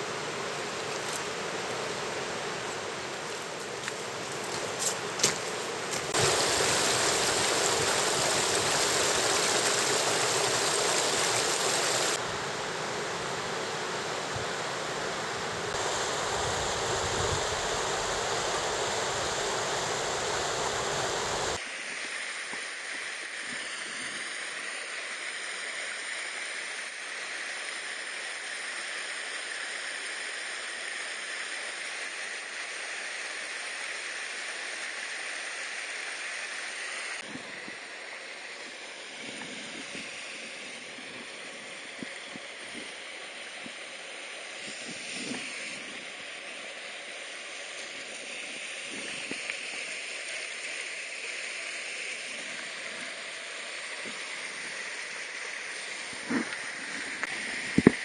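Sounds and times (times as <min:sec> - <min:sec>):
stream rushing over rocks: 0:00.0 - 0:21.6.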